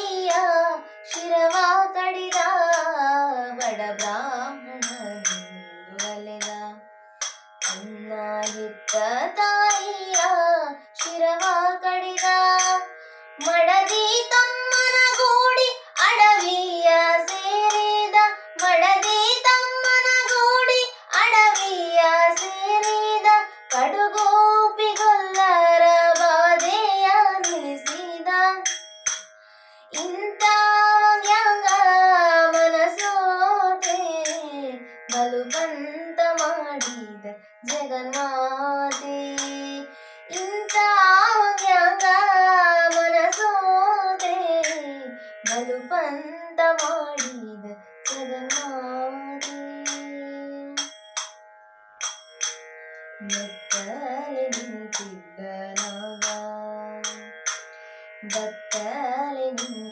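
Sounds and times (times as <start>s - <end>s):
woman singing devotional song: 0.0s - 51.0s, 53.2s - 59.9s
small hand cymbals chiming: 4.8s - 11.6s, 12.2s - 33.2s, 38.9s - 45.9s, 49.4s - 50.2s, 50.8s - 59.9s.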